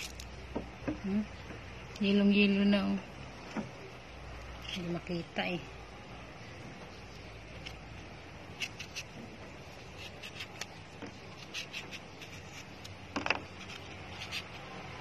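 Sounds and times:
knife cutting mango skin: 7.1 - 15.0.

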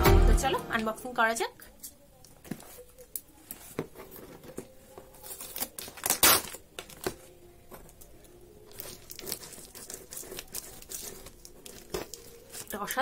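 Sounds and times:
packing tape tearing: 5.1 - 7.2, 8.7 - 13.0
scissors cutting packing tape: 5.2 - 7.2, 8.7 - 12.8.

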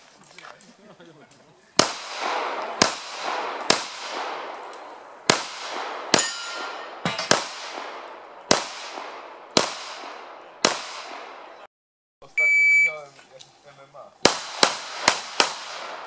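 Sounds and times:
pistol shots echoing: 1.8 - 11.7, 14.2 - 16.0
short metallic ring: 6.2 - 7.0.

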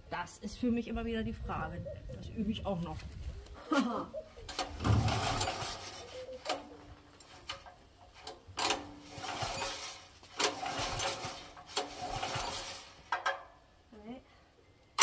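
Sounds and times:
engine rattling turn-over: 4.5 - 13.4
generator pull-starter yanked: 4.5 - 13.4.

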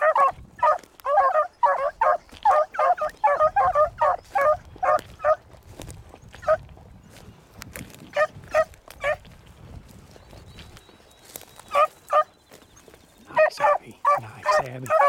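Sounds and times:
dogs baying: 0.0 - 5.4, 6.3 - 6.7, 8.1 - 9.3, 11.6 - 15.0.

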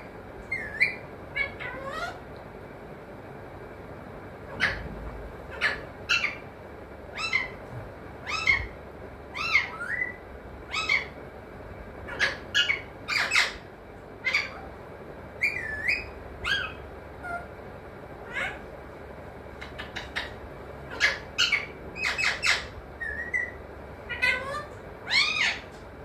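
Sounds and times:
parakeet squawking: 0.5 - 2.3, 4.5 - 4.9, 5.5 - 6.5, 7.1 - 7.6, 8.2 - 11.2, 12.0 - 14.7, 15.4 - 17.5, 18.2 - 18.7, 19.6 - 25.8.

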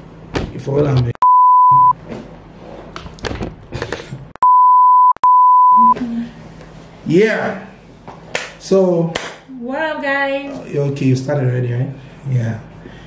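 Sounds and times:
censor bleeps: 1.2 - 2.0, 4.4 - 6.0.

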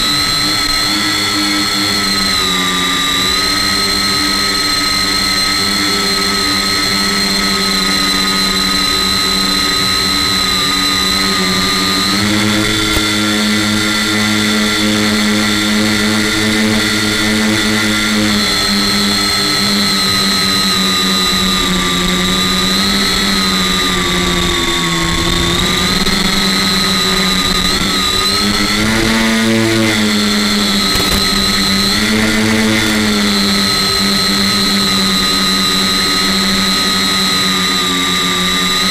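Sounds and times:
drone motors and propellers whining: 0.0 - 38.9.

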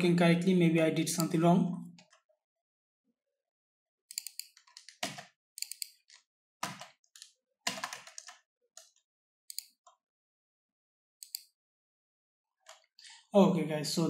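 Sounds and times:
computer keyboard keystrokes: 4.1 - 9.8.

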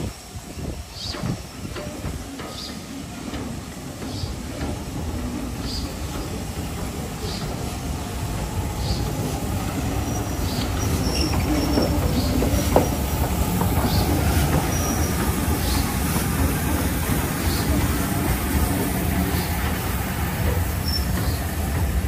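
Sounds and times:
train wheels rumbling on rail: 0.0 - 22.0
high wheel squeals: 8.8 - 13.1, 20.8 - 21.5.

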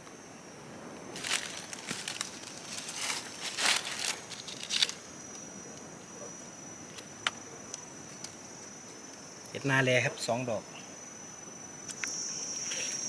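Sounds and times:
high insect buzz: 0.0 - 13.0
dry leaves crackling and rustling: 1.1 - 5.1.

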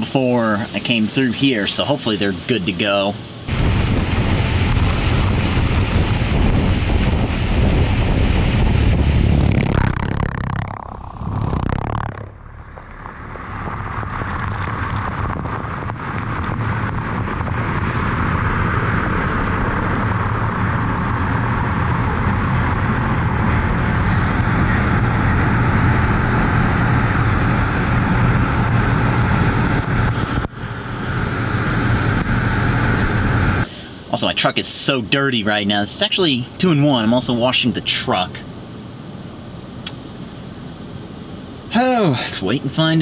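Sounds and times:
low rumble: 3.2 - 34.1.

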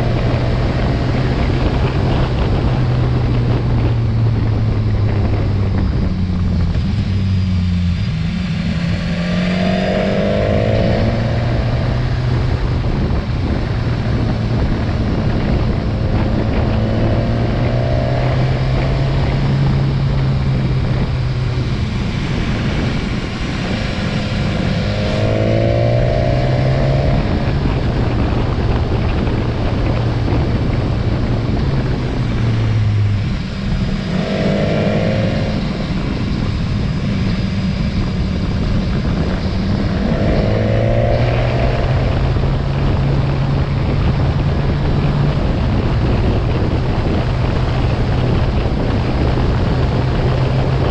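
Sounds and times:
motorcycle engine running: 0.0 - 50.9
wind and road noise: 0.0 - 50.9.

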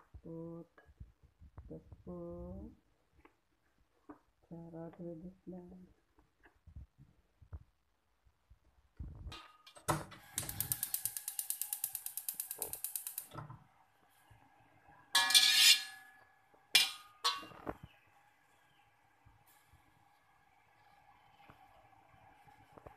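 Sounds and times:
gas stove igniter clicking: 9.9 - 13.4
metal spatula scraping wok: 15.2 - 16.1, 16.8 - 17.6.

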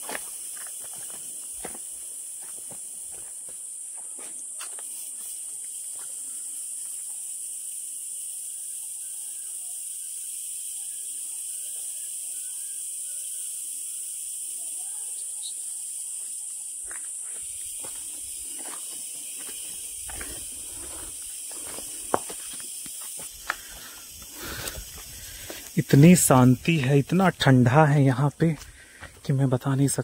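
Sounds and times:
footstep on stony ground: 0.0 - 4.9, 16.8 - 26.5, 28.5 - 29.3
insects droning: 0.0 - 30.0.

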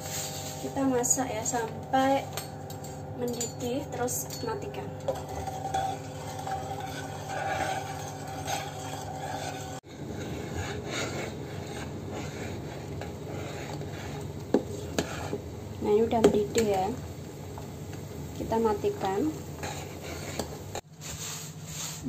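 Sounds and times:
steady hum: 0.0 - 21.7
metal spoon scraping a pot: 2.2 - 15.5, 18.8 - 20.9.

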